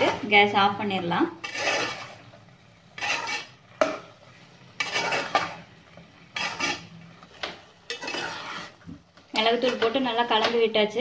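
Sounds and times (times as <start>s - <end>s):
metal spoon scraping pot: 1.4s - 4.1s, 4.7s - 10.6s.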